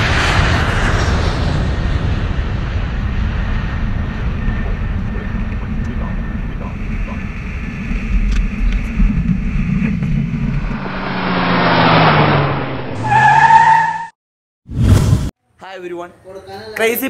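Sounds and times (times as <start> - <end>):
airliner rumble: 0.0 - 13.1
whoosh passing: 9.1 - 13.7
loud high squeal: 11.8 - 14.1.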